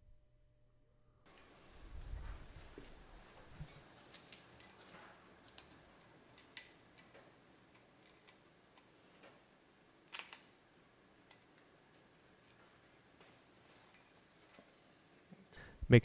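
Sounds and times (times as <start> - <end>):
metal clips snapping on: 10.1 - 10.5.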